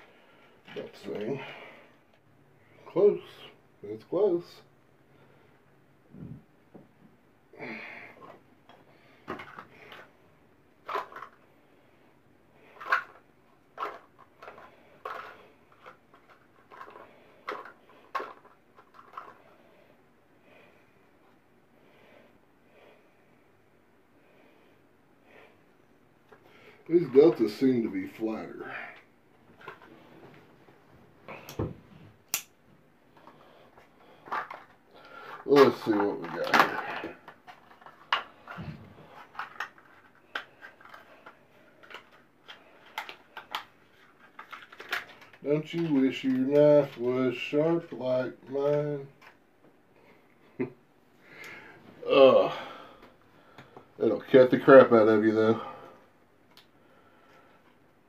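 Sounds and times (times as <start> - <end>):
faint rustling of parts packet: 0.0 - 3.6, 8.1 - 21.4, 25.6 - 30.9, 32.8 - 49.5.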